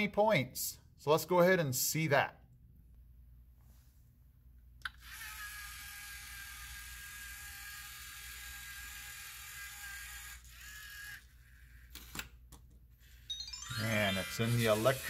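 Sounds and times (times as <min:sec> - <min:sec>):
robot motors whining: 0:05.0 - 0:12.0, 0:13.0 - 0:15.0.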